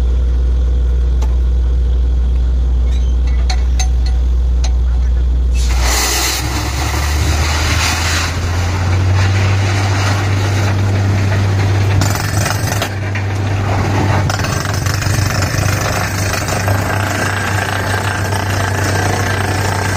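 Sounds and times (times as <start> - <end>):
drilling rig engine drone: 0.0 - 19.9
drill rod hammering and grinding: 11.6 - 13.4, 14.2 - 19.9.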